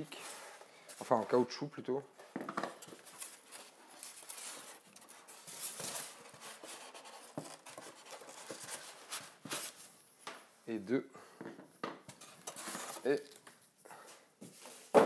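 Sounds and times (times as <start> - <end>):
foam packaging scratching: 2.8 - 9.9, 12.2 - 13.4.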